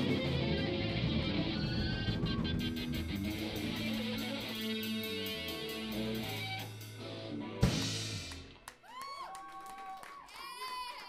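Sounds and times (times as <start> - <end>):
rock band playing: 0.0 - 8.7
ticking cymbals: 2.8 - 7.1
loud final band hit: 7.6 - 8.5.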